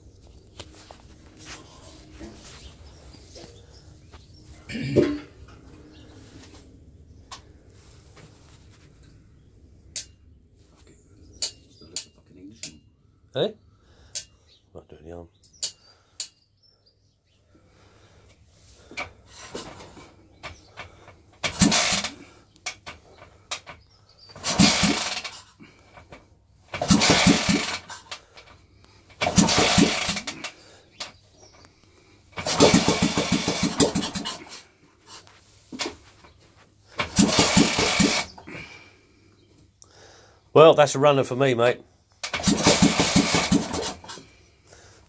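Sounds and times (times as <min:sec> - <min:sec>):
motorcycle engine starting: 0:17.8 - 0:34.8, 0:35.6 - 0:39.0, 0:42.2 - 0:44.4.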